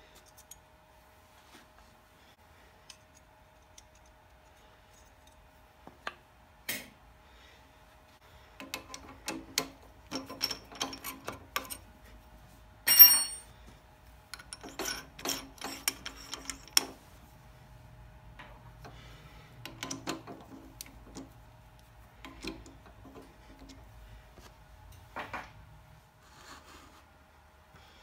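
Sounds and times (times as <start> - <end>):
ringing metallic clink: 12.9 - 13.5.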